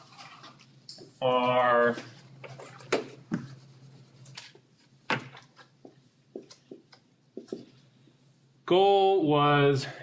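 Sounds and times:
whiteboard being wiped: 1.4 - 4.5
eraser and marker knocking: 2.5 - 7.8.

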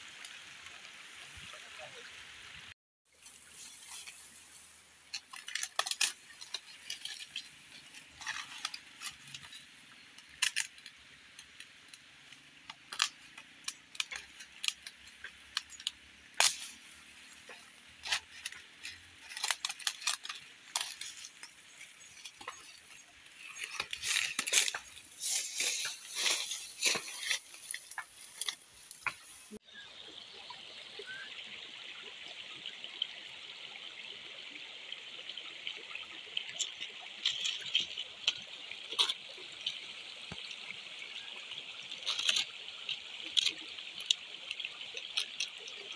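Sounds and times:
bamboo stems rustling: 3.1 - 29.6, 36.5 - 40.6, 41.8 - 45.9
dry leaves crackling underfoot: 3.2 - 11.8, 12.4 - 29.6.

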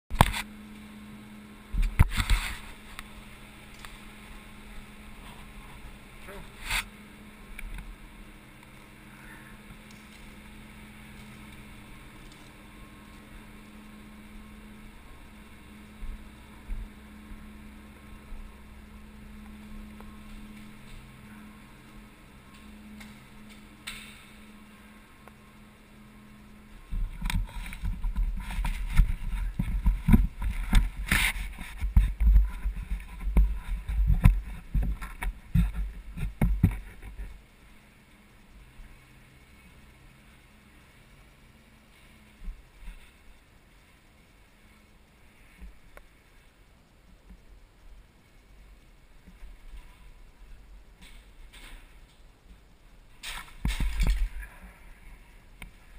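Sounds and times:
low hum: 0.1 - 55.9
camera shaking rumble: 1.6 - 9.0, 9.6 - 24.5, 26.3 - 37.8, 47.0 - 55.9
bike rattling over concrete: 26.9 - 37.4, 51.0 - 54.7
bike thumping on concrete: 53.2 - 54.4.

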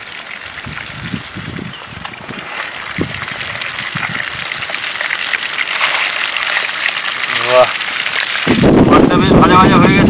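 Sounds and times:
fish sizzling in hot oil: 0.0 - 10.0.

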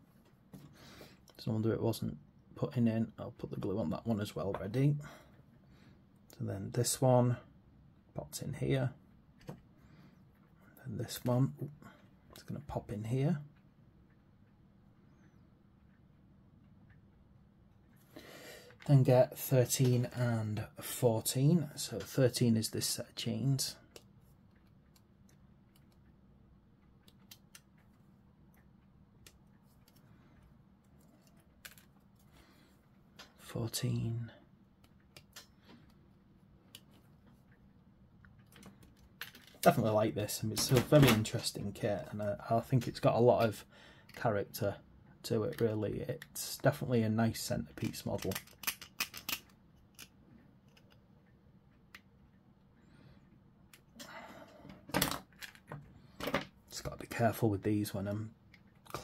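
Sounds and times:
plastic parts clicking: 47.8 - 51.0, 54.9 - 56.5.

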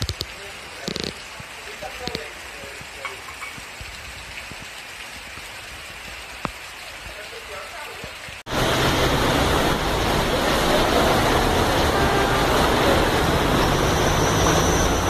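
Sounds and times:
water splashing and rushing: 0.0 - 15.0
car engines: 8.5 - 15.0.

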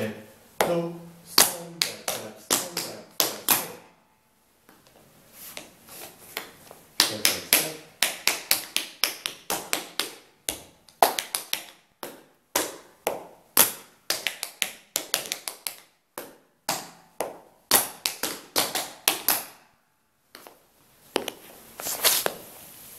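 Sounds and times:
tap shoes on hard floor: 4.7 - 19.5, 20.4 - 21.4.

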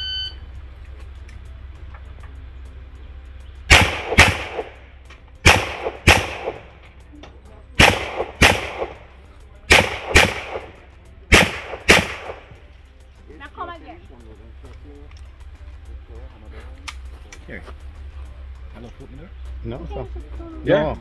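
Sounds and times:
pistol shots with echo: 3.7 - 4.8, 5.4 - 6.8, 7.8 - 12.6.

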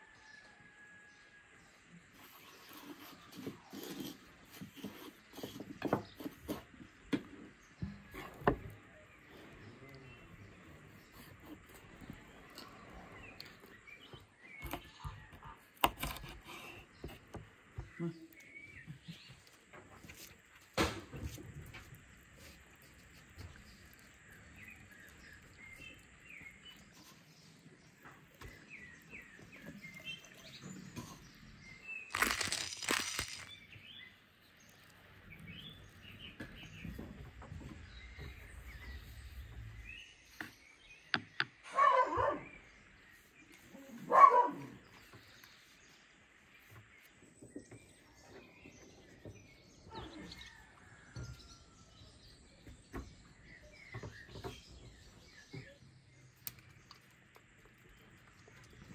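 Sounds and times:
small birds chirping: 2.0 - 58.9.

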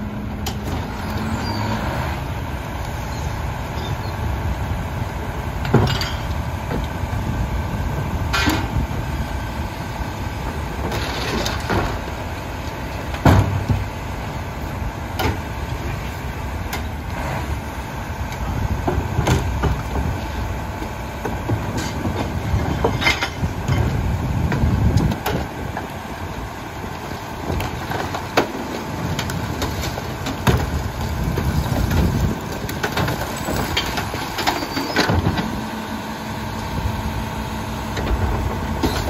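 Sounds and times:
garbage truck engine running: 0.0 - 39.0
knocks and bangs in hopper: 13.1 - 14.0, 27.4 - 35.6.

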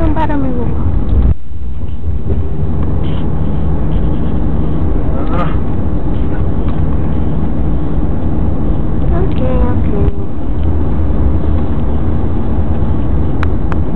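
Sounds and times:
engine hum: 0.0 - 13.9
road and engine rumble: 0.0 - 13.9.

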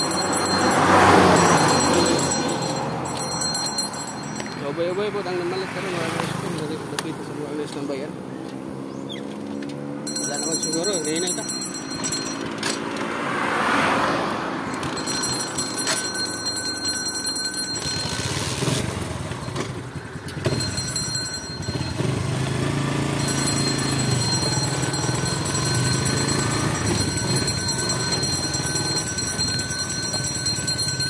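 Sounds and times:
vehicle engine running: 0.0 - 4.6, 14.7 - 31.0.

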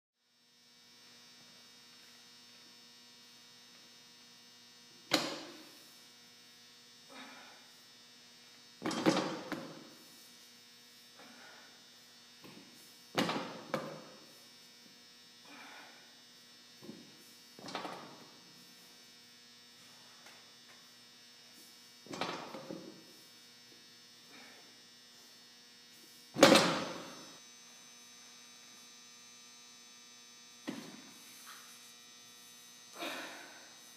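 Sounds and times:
electrical hum: 0.2 - 33.9.

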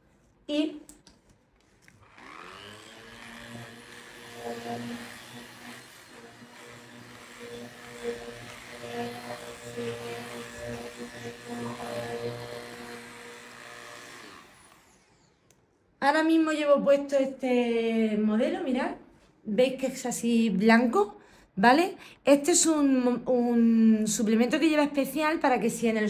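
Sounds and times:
vacuum cleaner running: 2.0 - 15.4.

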